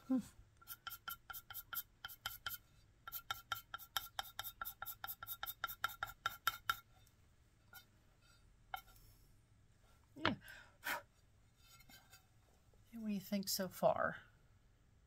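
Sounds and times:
pencil scratching on clay plate: 0.6 - 7.1, 7.7 - 9.0.

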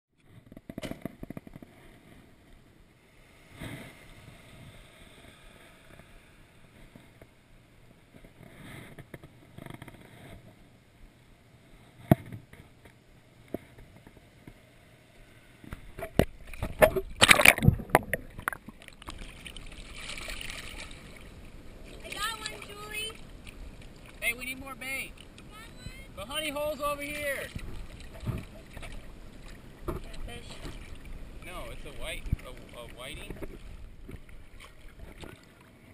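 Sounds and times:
water lapping and sloshing: 11.7 - 35.9
water splashing: 15.7 - 35.9.

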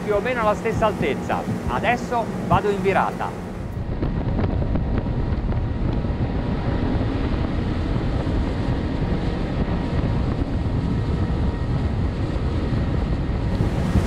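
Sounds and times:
water rushing past hull: 0.0 - 5.5, 13.5 - 14.0
outboard engines running hard: 0.0 - 14.0
wind buffeting microphone: 0.0 - 14.0.

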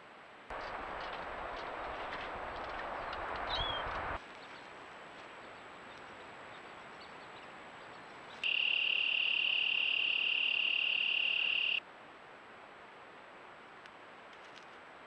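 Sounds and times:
faint steady hiss: 0.0 - 15.0
cricket trilling: 8.4 - 11.8.

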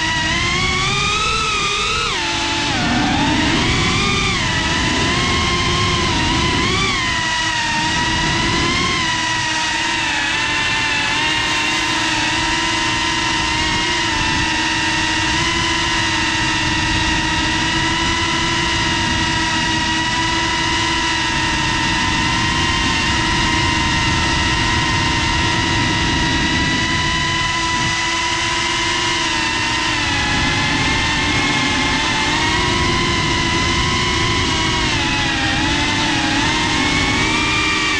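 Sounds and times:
drone motors whining: 0.0 - 37.9.

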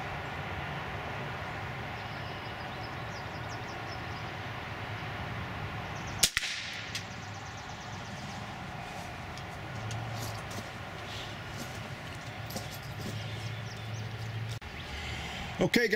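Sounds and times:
rifle shot crack: 6.2 - 7.1.

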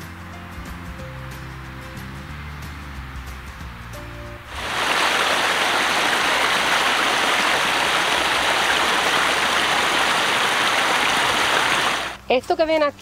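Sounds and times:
stream rushing over rocks: 4.5 - 12.2.

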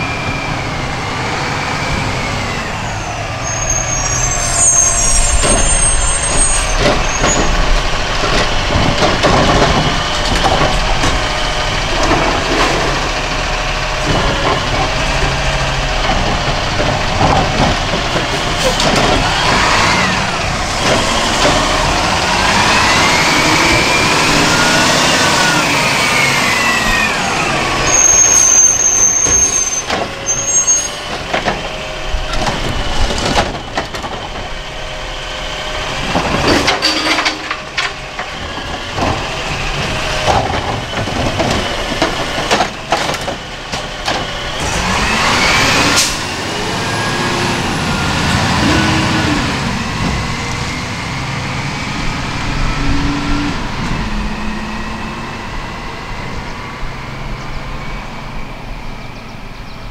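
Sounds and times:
truck engine: 0.0 - 59.9
knocks and bangs of cart: 5.3 - 24.2, 29.1 - 34.7, 35.8 - 46.0.

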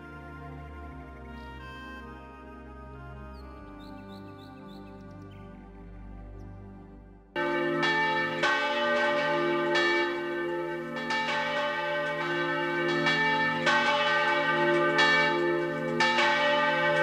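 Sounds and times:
church bells ringing: 7.4 - 17.0.

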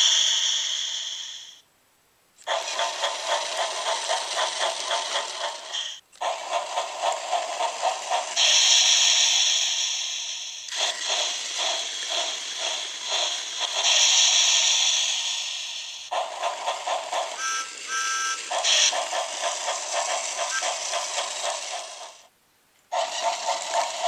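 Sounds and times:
toy train chugging on track: 0.0 - 1.6, 2.4 - 22.3, 22.9 - 24.0
steady high hiss: 0.0 - 3.9, 6.7 - 17.3.

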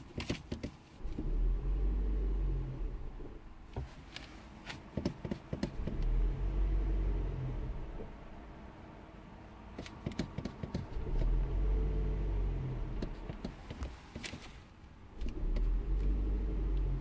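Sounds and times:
engine cranking rumble: 1.0 - 3.5, 4.8 - 8.3, 9.8 - 14.5, 15.1 - 17.0.

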